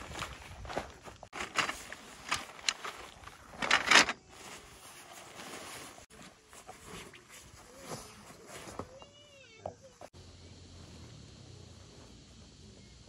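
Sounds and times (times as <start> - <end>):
tent fabric rustling and crinkling: 0.0 - 9.5.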